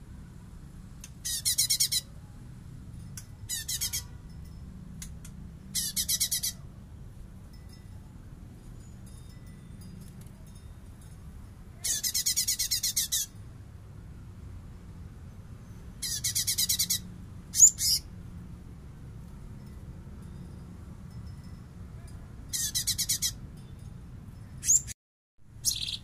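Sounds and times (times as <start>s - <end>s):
bird singing rapid chatter: 1.2s - 2.1s, 3.5s - 4.2s, 5.0s - 6.6s, 11.8s - 13.4s, 15.6s - 18.1s, 22.5s - 23.4s, 24.6s - 25.0s, 25.6s - 26.0s.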